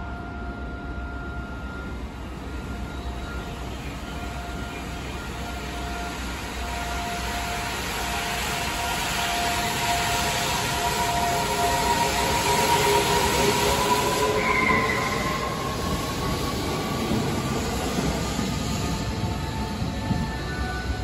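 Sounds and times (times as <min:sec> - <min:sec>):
electric train traction whine: 0:00.0 - 0:21.0.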